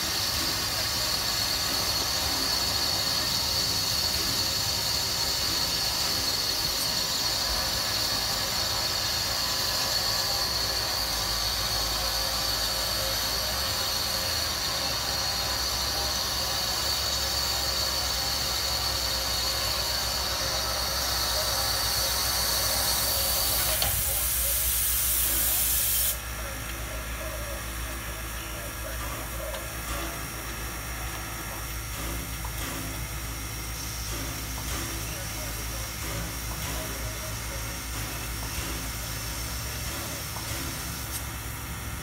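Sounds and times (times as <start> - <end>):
high-pitched whine: 0.0 - 24.6
steam hissing: 0.0 - 42.0.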